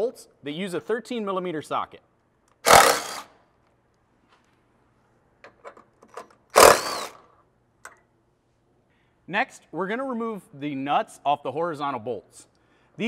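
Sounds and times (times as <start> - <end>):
power tool spinning out bolts: 2.6 - 3.3, 6.5 - 7.2.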